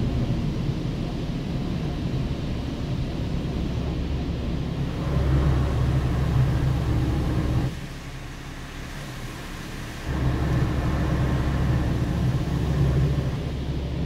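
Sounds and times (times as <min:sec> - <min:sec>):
water spray rushing rumble: 0:04.5 - 0:14.0.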